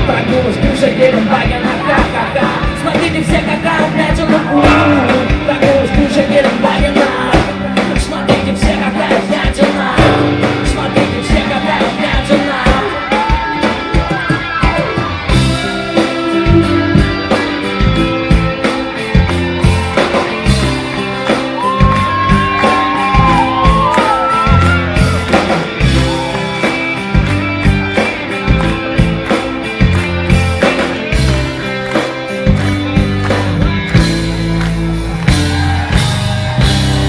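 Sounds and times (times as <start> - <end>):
person singing: 0.0 - 17.8
electric guitar: 0.0 - 37.0
rock band playing: 0.0 - 37.0.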